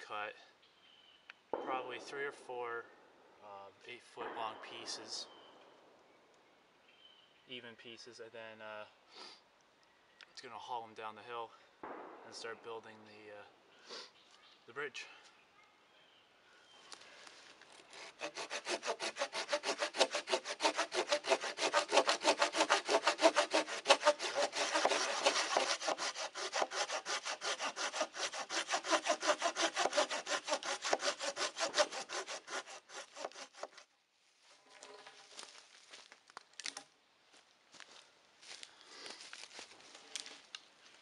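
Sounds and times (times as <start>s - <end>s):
hand saw cutting wood: 17.9s - 33.8s.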